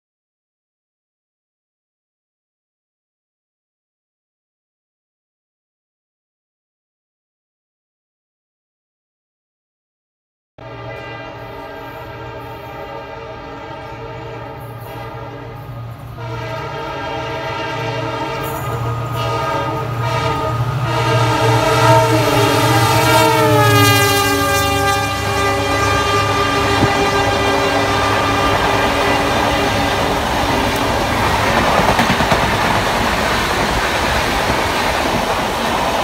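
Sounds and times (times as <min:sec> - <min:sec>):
locomotive multi-tone horn: 0:10.6 - 0:31.8
train coaches clattering: 0:13.7 - 0:36.0.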